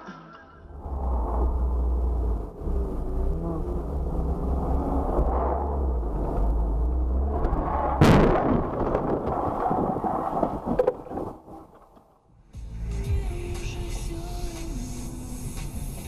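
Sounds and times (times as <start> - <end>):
car road and engine rumble: 0.6 - 16.0
loud car crash: 7.6 - 11.8.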